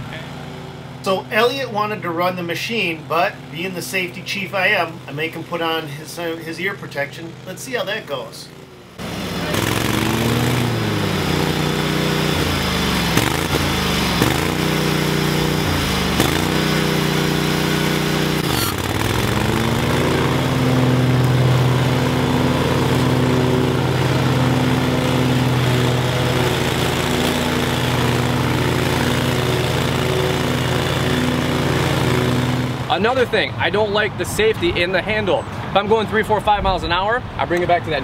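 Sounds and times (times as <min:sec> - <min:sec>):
mower engine running: 0:00.0 - 0:34.8.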